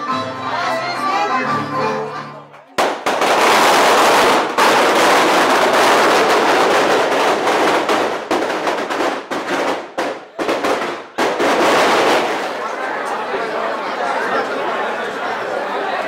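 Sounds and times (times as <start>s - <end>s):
firecrackers crackling: 2.8s - 12.9s.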